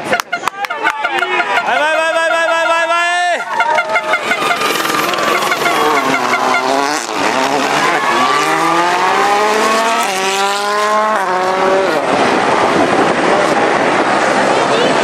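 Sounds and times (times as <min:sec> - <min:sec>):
tyre noise: 0:02.8 - 0:15.0
rally car engine accelerating: 0:03.5 - 0:15.0.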